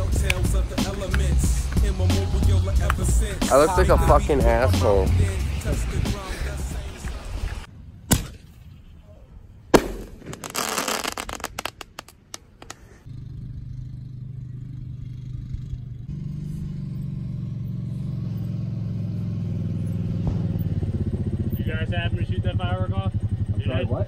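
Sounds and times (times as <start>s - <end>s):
low engine drone: 0.0s - 7.7s
firework bangs: 9.7s - 12.7s
firework crackling: 9.7s - 13.0s.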